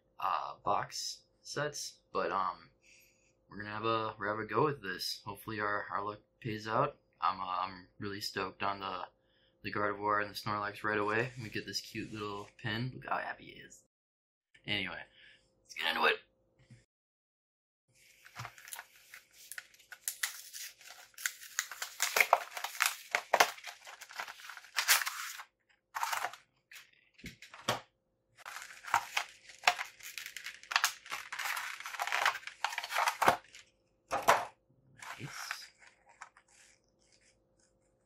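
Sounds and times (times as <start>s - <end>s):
plastic packaging crinkling: 18.1s - 27.7s, 28.4s - 34.4s, 35.0s - 37.3s.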